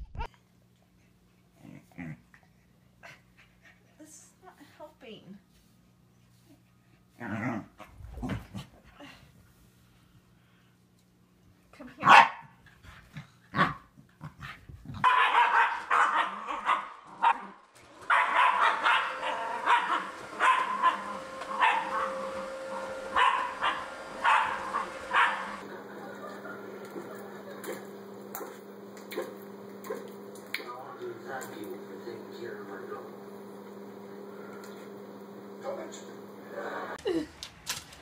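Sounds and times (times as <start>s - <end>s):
dog barking rapidly: 12.0s - 12.4s, 15.0s - 17.5s, 18.1s - 22.2s, 23.2s - 25.6s.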